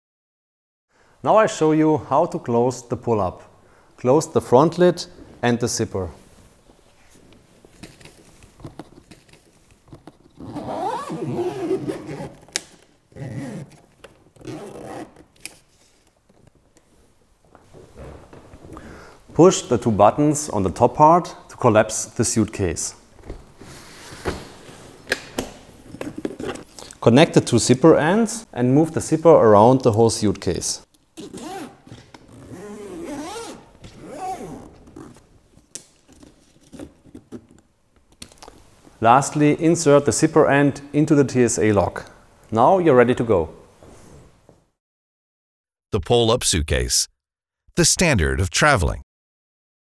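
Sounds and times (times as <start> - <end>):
suitcase zipper: 9.0 - 13.8, 14.4 - 15.3, 31.2 - 35.2
suitcase zipper pulled shut: 9.9 - 13.8, 14.4 - 15.3.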